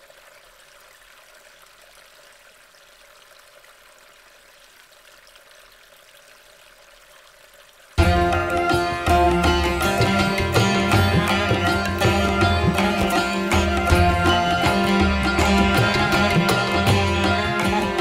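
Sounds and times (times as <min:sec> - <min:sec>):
flowing water: 0:00.0 - 0:18.0
sitar music: 0:08.0 - 0:18.0.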